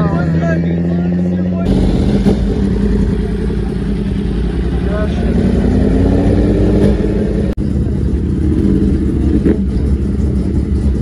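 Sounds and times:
vehicle engines rumbling: 0.0 - 11.0.

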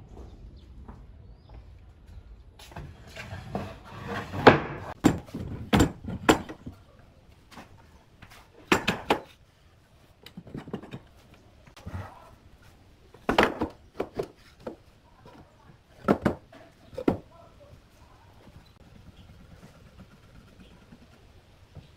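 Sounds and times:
wooden boards knocking on metal: 16.0 - 17.2.

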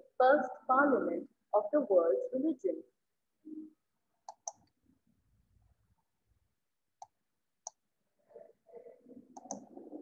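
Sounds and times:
computer mouse clicks: 4.2 - 4.8, 7.0 - 7.8, 9.3 - 9.7.

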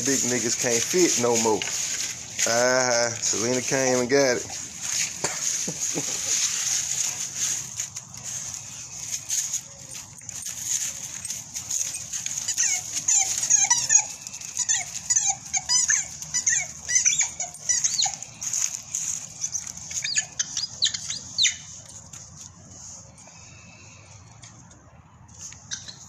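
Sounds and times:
dry leaves crunching: 0.0 - 26.0
dogs whining and yipping: 8.4 - 21.9.

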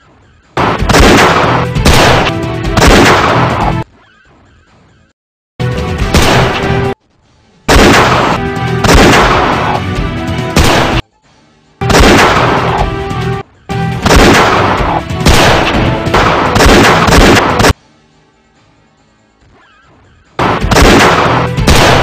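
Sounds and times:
background music: 0.0 - 22.0
echoing shot-like bangs: 0.6 - 3.8, 6.1 - 7.0, 7.7 - 9.8, 10.5 - 11.0, 11.8 - 12.9, 13.9 - 17.8, 20.4 - 22.0.

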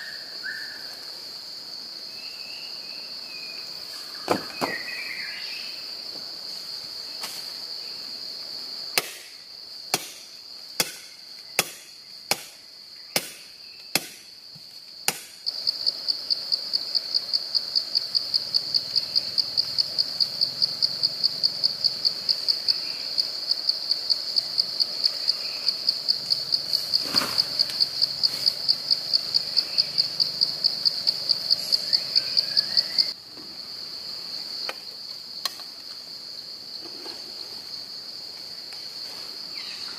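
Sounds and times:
high insect drone: 0.0 - 39.9
insects pulsing chirp: 0.0 - 39.9
axe chopping firewood: 9.0 - 14.3, 15.1 - 15.4.

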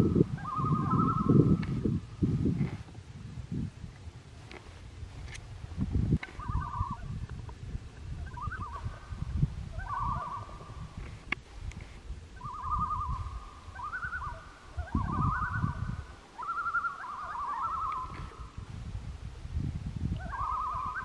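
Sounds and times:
loons tremolo calls: 0.0 - 1.6, 6.3 - 7.1, 8.2 - 11.0, 12.4 - 18.6, 20.2 - 21.0.

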